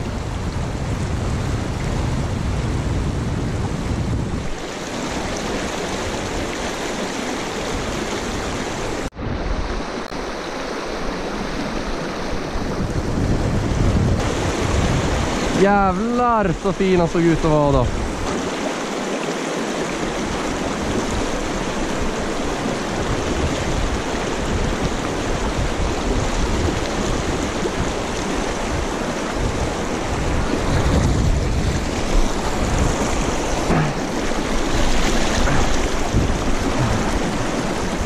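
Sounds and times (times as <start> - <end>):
river rushing over boulders: 4.3 - 38.0
deep rumbling: 30.3 - 38.0.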